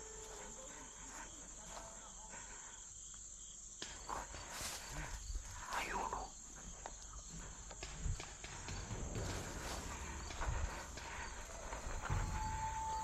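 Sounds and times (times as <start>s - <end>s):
rustling footsteps: 0.0s - 2.4s, 3.8s - 13.0s
crickets chirping: 0.0s - 13.0s.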